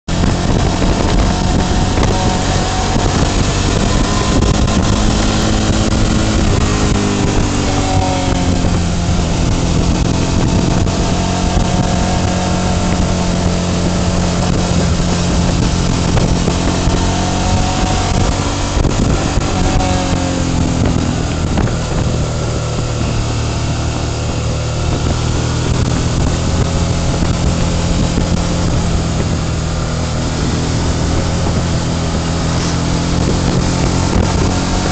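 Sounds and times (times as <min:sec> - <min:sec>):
motorcycle engine running: 0:00.0 - 0:34.9
wind noise: 0:00.1 - 0:34.9.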